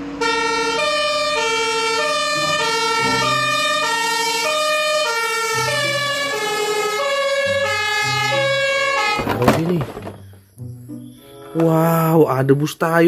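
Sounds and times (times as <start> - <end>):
fire engine two-tone siren: 0.0 - 9.3.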